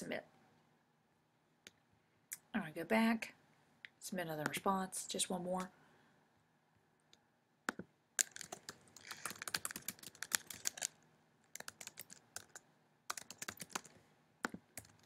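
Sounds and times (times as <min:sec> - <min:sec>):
typing on computer keyboard: 0:07.7 - 0:15.0.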